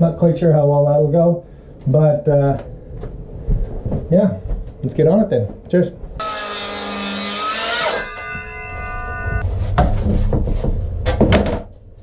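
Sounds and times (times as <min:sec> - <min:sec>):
power tool whining: 0:06.2 - 0:09.4
ringing tone: 0:07.5 - 0:09.4.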